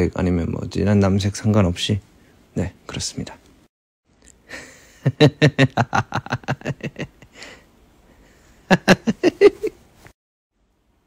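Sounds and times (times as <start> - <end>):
man laughing: 4.5 - 7.6, 8.7 - 9.8.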